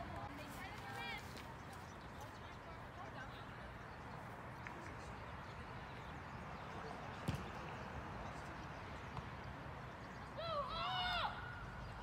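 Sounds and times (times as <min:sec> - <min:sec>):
soccer match background noise: 0:00.0 - 0:12.0
ball being kicked: 0:07.2 - 0:07.6.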